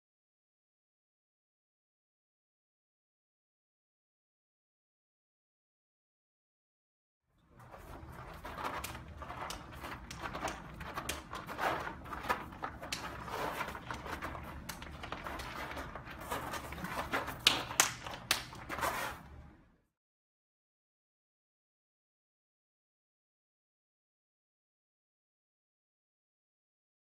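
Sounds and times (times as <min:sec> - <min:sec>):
hand and arm slaps: 0:16.5 - 0:19.2.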